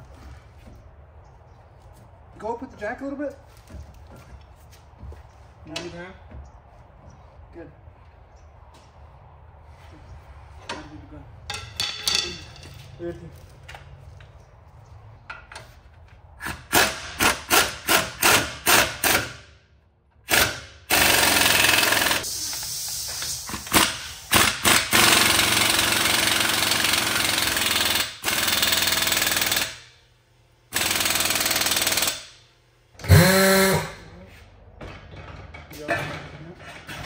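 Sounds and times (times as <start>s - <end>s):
impact wrench hammering: 11.5s - 12.7s, 23.6s - 29.9s, 30.7s - 32.4s.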